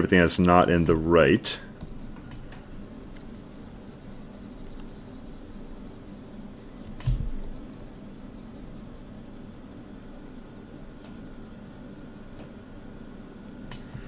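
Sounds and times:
stylus scratching on screen: 1.8s - 12.2s.

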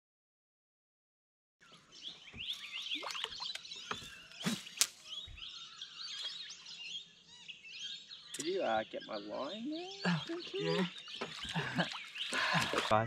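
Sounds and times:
birds chirping and whistling: 1.6s - 13.0s.

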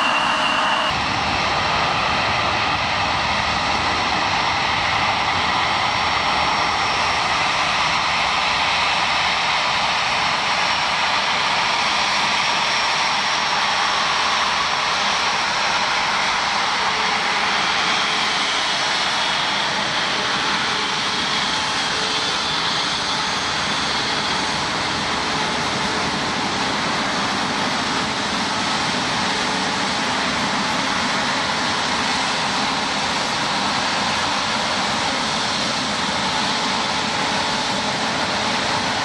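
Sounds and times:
faint high whine: 0.0s - 1.2s
jet engines rushing: 0.0s - 39.0s.

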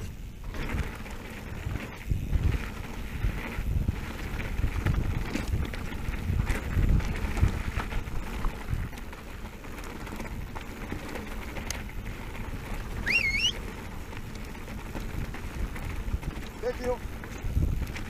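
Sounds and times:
wind noise on microphone: 0.0s - 18.0s
high wavering chirp: 13.0s - 13.6s.

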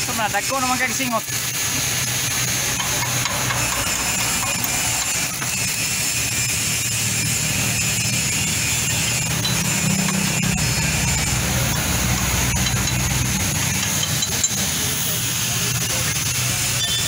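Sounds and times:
engine humming: 1.2s - 17.0s
metal tools tapping on drum: 2.7s - 5.7s, 9.2s - 14.7s.

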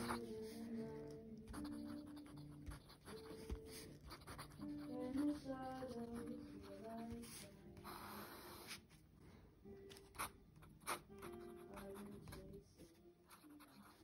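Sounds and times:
pen nib scratching paper: 0.0s - 9.0s, 9.9s - 14.0s
soft background music: 0.0s - 14.0s.

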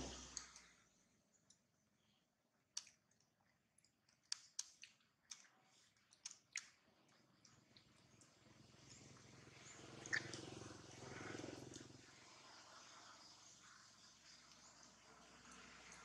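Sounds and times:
monkey wet mouth clicks and smacks: 2.7s - 9.1s, 10.0s - 10.6s.

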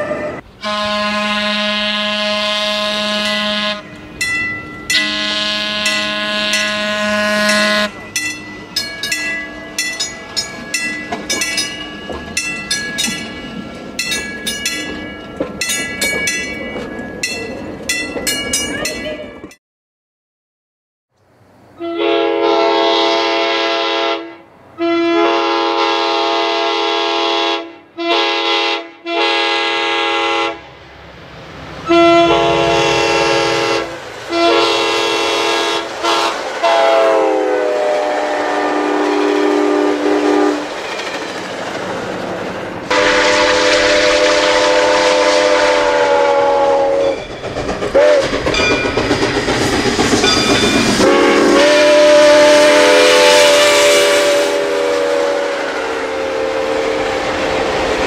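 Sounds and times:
locomotive air horn blasts: 0.0s - 4.0s, 5.0s - 8.0s, 21.8s - 30.7s, 31.8s - 40.6s, 42.9s - 47.2s, 48.0s - 48.2s, 51.0s - 57.7s
rolling train noise: 0.0s - 19.6s, 21.2s - 58.0s.

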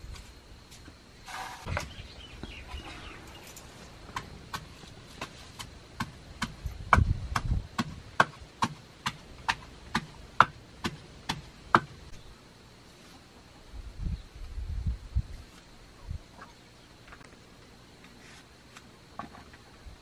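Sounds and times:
wooden pestle pounding in mortar: 4.1s - 11.9s.

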